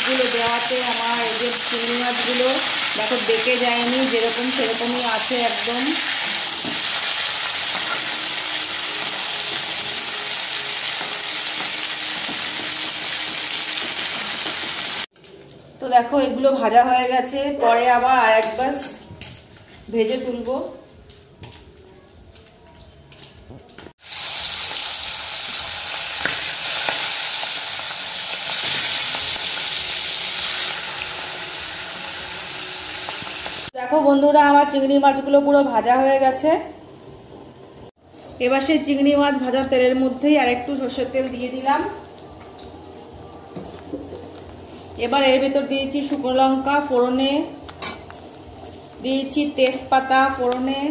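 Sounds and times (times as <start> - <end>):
prawns sizzling in hot oil: 0.0 - 15.1, 24.0 - 33.8
sharp crackles of frying: 0.0 - 15.7, 18.4 - 33.8, 41.6 - 50.9.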